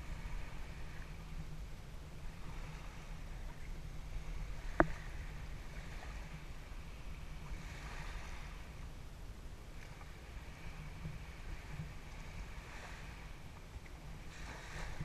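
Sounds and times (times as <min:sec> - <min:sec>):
faint steady hiss: 0:00.0 - 0:15.0
wind rumble on microphone: 0:00.0 - 0:15.0.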